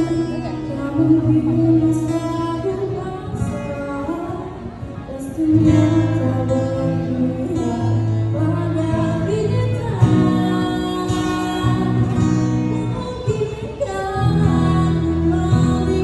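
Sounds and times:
acoustic guitar: 0.0 - 16.0
woman singing into a microphone: 0.0 - 16.0.

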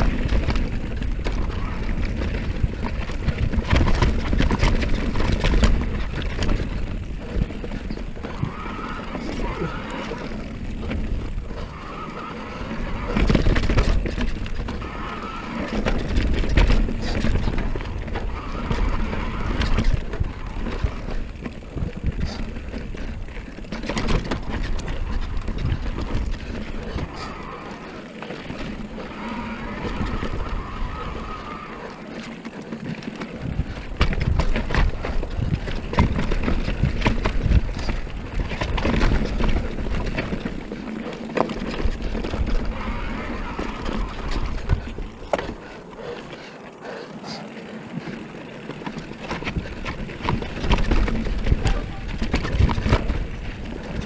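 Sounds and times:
bike rattling and knocking: 0.0 - 54.0
bike tyres on dirt and rock: 0.0 - 54.0
wind buffeting microphone: 33.4 - 40.8, 41.6 - 46.1, 47.9 - 54.0.

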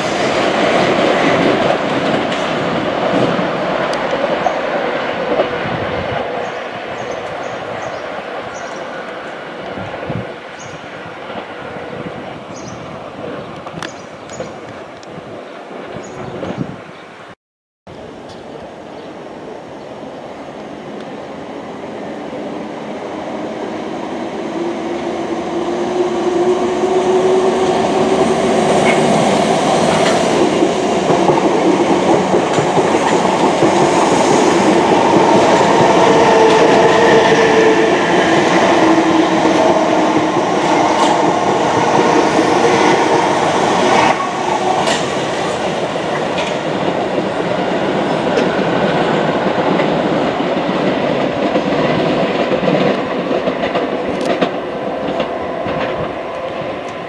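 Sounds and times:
train running past: 0.0 - 16.7, 18.0 - 57.0
wheels clicking over rail joints: 46.1 - 47.3, 48.3 - 57.0.

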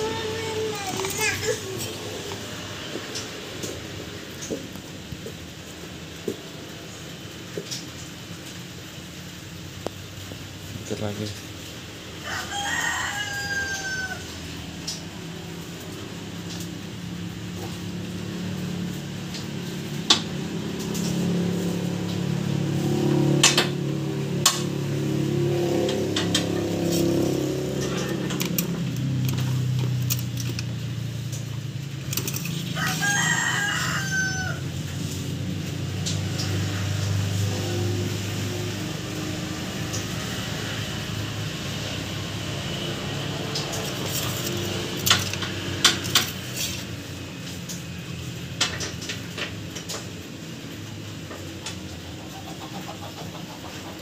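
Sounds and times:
drawn-out animal call: 27.0 - 30.8.

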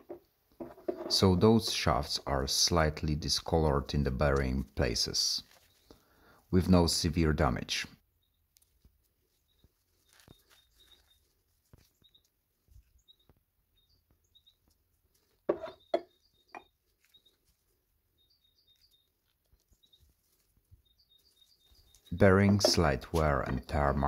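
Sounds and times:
birds chirping: 9.4 - 11.3, 12.0 - 24.0.

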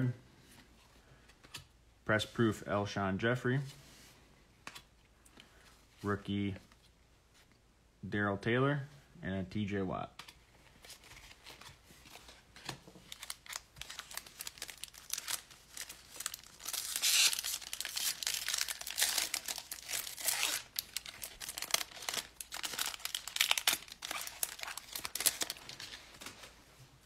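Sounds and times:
plastic wrapper tearing and crinkling: 12.6 - 26.4.

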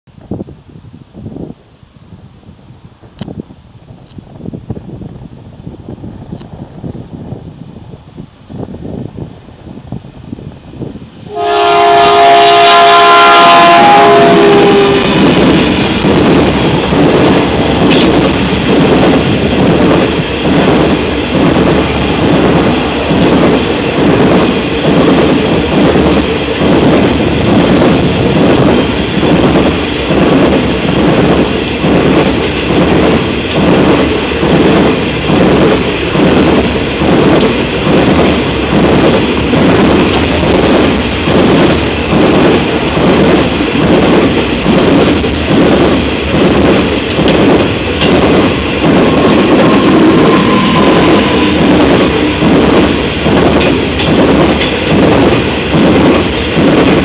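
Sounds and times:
train wheels rumbling on rail: 0.1 - 57.0
wheels clacking over rail joints: 14.6 - 57.0.

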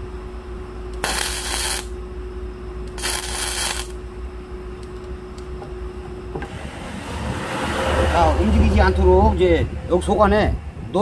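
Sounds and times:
steady hum: 0.0 - 11.0
welding arc crackling: 1.0 - 2.0, 2.9 - 4.0.

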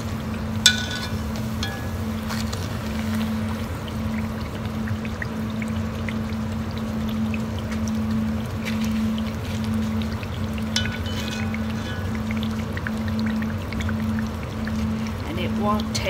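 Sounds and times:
oil bubbling and sizzling: 0.0 - 16.0
range hood fan humming: 0.0 - 16.0.

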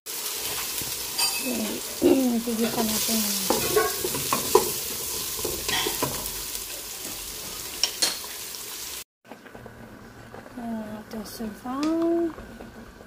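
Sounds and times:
vegetables sizzling in hot oil: 0.1 - 9.1
spatula scraping a pot: 2.6 - 6.3.

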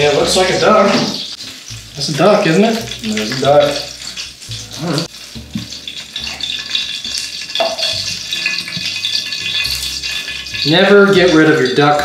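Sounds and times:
duck fat sizzling in a skillet: 0.0 - 12.0
pan and tongs knocking: 5.5 - 12.0.

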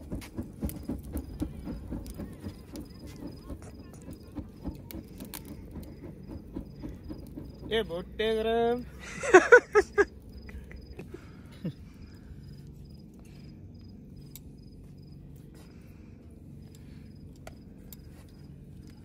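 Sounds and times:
low background rumble: 0.0 - 19.0
cricket chirping: 0.1 - 15.3.

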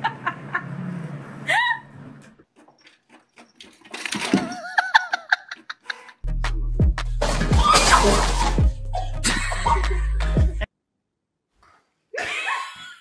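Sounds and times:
person laughing: 1.5 - 1.9, 4.4 - 6.2, 7.9 - 10.3
clicks and knocks: 2.6 - 4.8
music: 6.2 - 10.7.

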